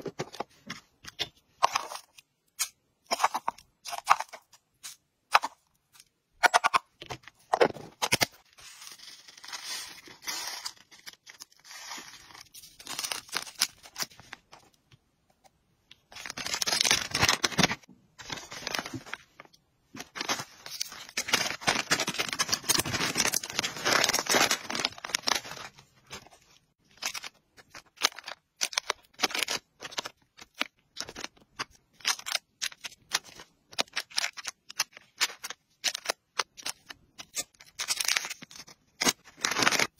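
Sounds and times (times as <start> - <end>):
plastic bags crinkling: 16.1 - 26.2
plastic packets clicking: 20.0 - 25.7, 26.9 - 39.9.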